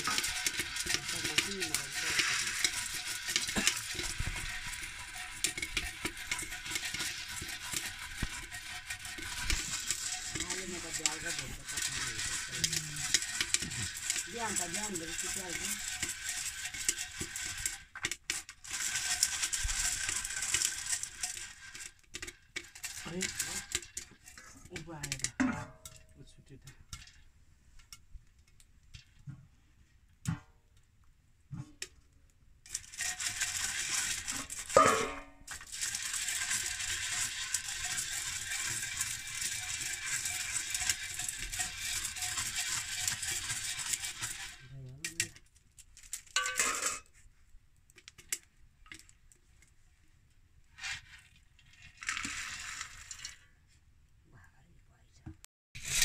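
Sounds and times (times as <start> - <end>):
corn tipped into metal bowl: 0.0 - 26.1, 32.7 - 47.2, 50.8 - 53.4, 55.8 - 56.0
corn rattling in metal pot: 0.0 - 29.3, 31.6 - 49.9, 50.6 - 53.8, 55.8 - 56.0.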